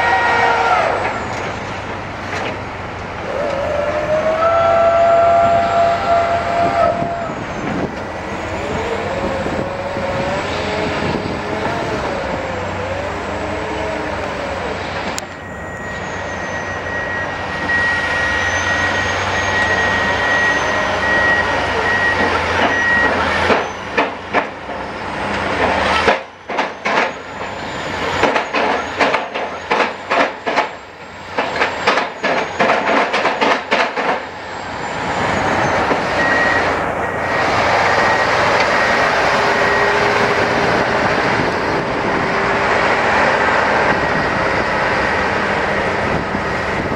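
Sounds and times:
diesel machinery engines: 0.0 - 46.9
reversing alarm beeping: 4.7 - 24.2, 25.9 - 46.9
knocks and clatter: 22.2 - 24.8, 25.6 - 27.6, 28.2 - 34.3.

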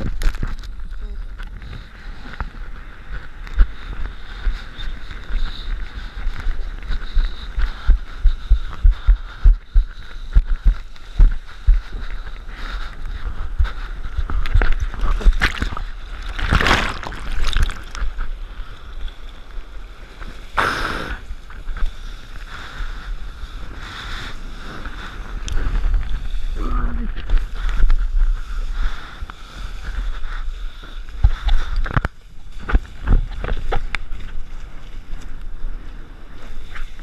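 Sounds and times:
wind buffeting microphone: 0.0 - 37.0
sea water rushing and splashing: 15.0 - 18.8.

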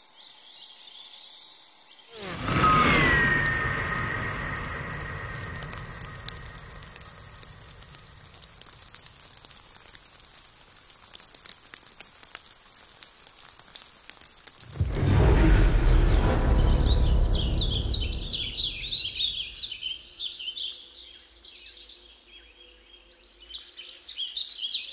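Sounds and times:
loud low sound: 2.2 - 8.4, 14.7 - 19.7
faint ticks and crackles: 3.6 - 15.6.

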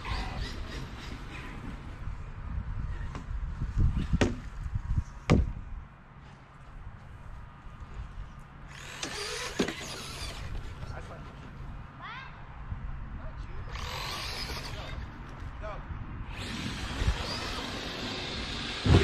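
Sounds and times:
electric motor whirring: 8.7 - 10.7, 13.7 - 15.1, 16.3 - 19.0.

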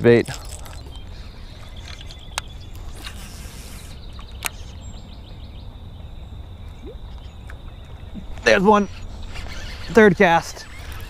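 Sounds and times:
sharp clicks: 1.7 - 3.5, 4.2 - 4.7
high insect buzz: 2.8 - 4.0.

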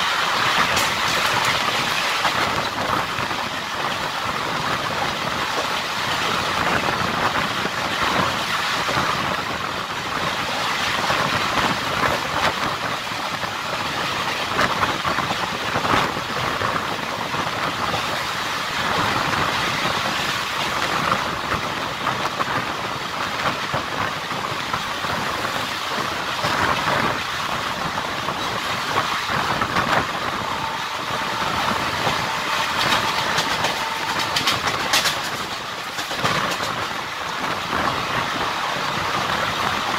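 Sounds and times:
wheels clattering over rail joints: 0.0 - 9.3, 23.2 - 39.9
train rumble: 0.0 - 39.9
wind rush: 0.0 - 39.9.

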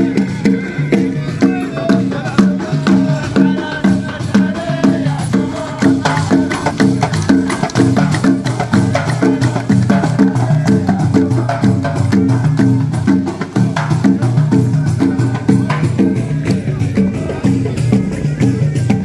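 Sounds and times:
traditional drum music: 0.0 - 19.0.

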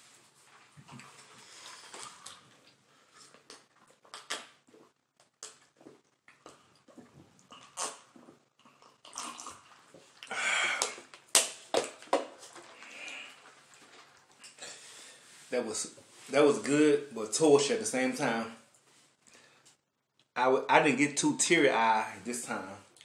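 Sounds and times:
person swallowing: 3.5 - 11.1.

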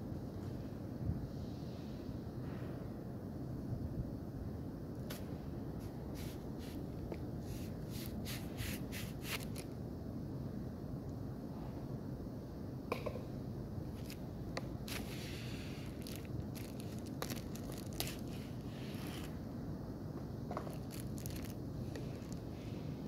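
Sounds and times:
steady low hum: 0.0 - 23.0
packing tape peeling and tearing: 8.0 - 9.7, 15.8 - 19.3, 20.7 - 22.4
plastic wrap crinkling: 14.8 - 15.2, 15.8 - 19.3, 20.6 - 22.4
packaging clicks and rustles: 15.8 - 19.3, 20.6 - 22.4.

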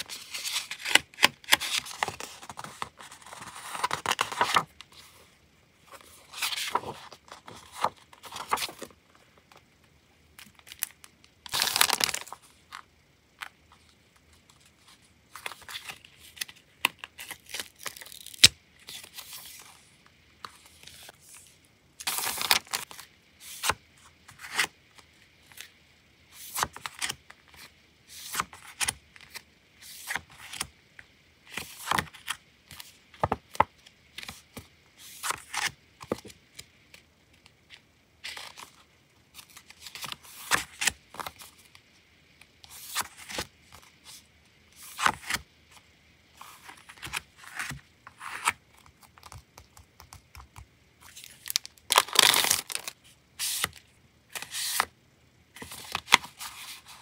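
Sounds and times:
paper crinkle: 51.1 - 53.7.

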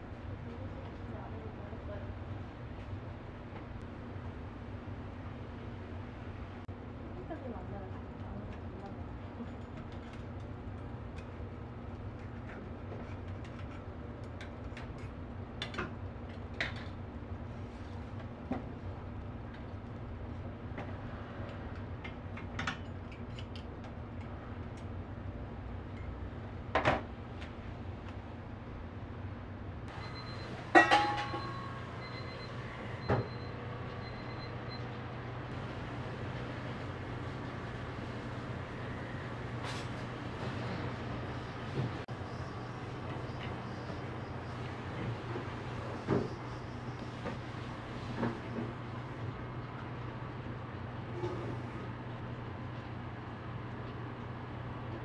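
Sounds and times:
metal cookware clanking: 30.7 - 31.7.

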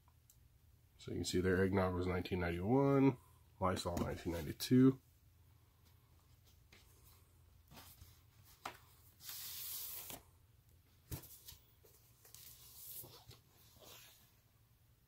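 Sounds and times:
paper sliding swish: 9.2 - 10.2.

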